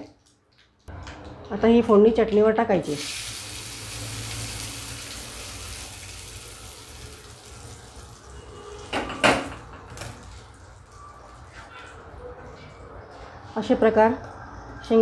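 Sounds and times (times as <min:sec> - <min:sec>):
hot oil sizzling: 0:02.8 - 0:08.8.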